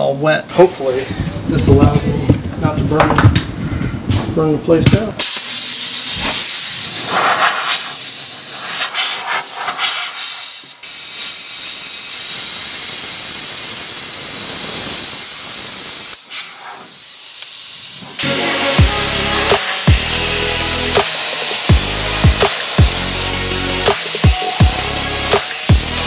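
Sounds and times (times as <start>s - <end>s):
faint hiss: 5.2s - 18.8s
plasma cutter hissing: 5.2s - 26.0s.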